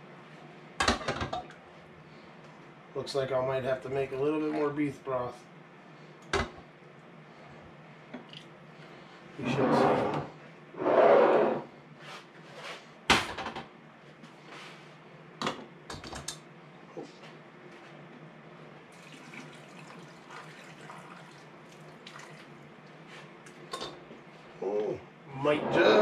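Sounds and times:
broth trickling into jar: 19.0s - 22.4s.

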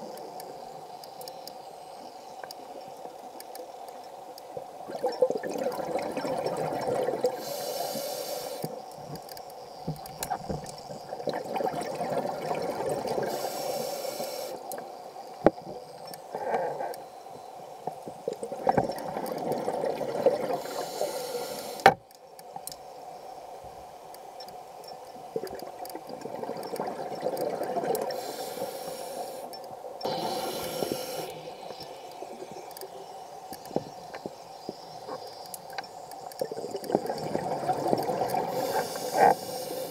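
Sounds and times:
bubbles gurgling underwater: 4.9s - 7.4s, 36.6s - 38.6s
hissing inhalations: 7.4s - 8.8s, 13.3s - 14.7s, 20.5s - 21.9s, 28.1s - 33.0s, 38.3s - 39.9s.

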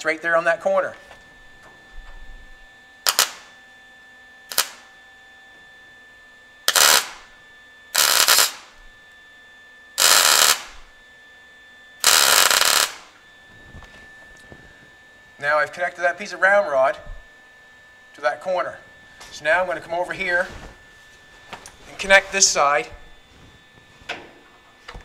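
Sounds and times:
arc welding bursts: 3.0s - 3.5s, 4.5s - 4.9s, 6.7s - 8.8s, 10.0s - 11.0s, 12.0s - 13.2s.

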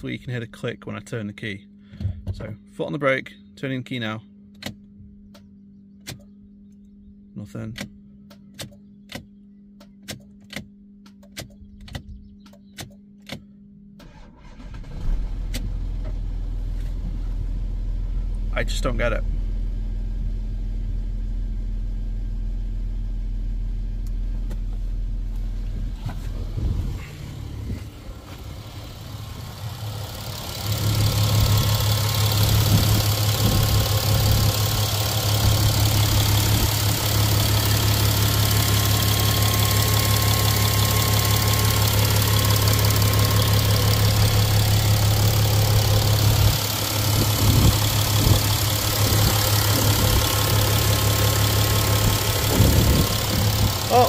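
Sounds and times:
diesel engine idling: 17.3s - 54.0s.

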